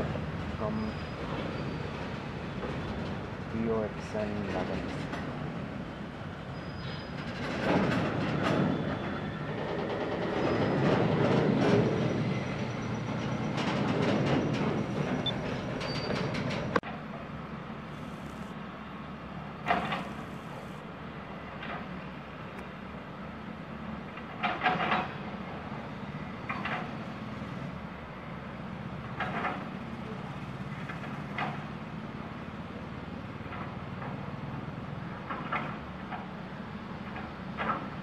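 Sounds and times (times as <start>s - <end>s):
freight wagons rumbling: 0.0s - 18.1s.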